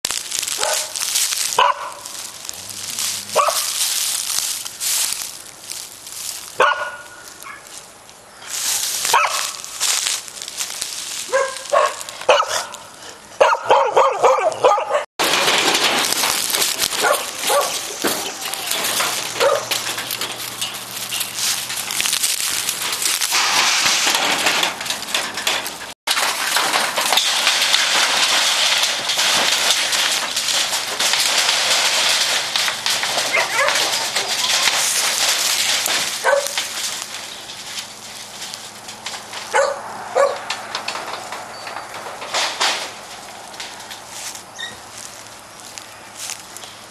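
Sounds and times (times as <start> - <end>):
dogs barking and yelping: 0.6 - 2.1, 3.3 - 3.8, 6.6 - 7.7, 9.1 - 9.6, 11.3 - 15.1, 16.9 - 20.0, 33.1 - 35.1, 36.1 - 36.6, 39.5 - 40.6.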